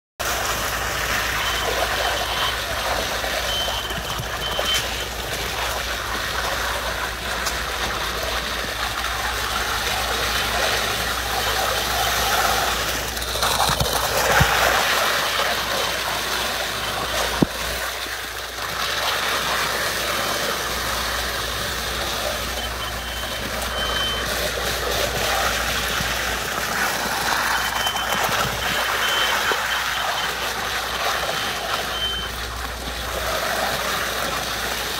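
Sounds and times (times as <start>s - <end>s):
concrete pump truck running: 0.2s - 34.9s
concrete streaming from hose: 0.2s - 34.9s
reversing alarm beeps: 0.5s - 5.8s, 21.8s - 32.4s.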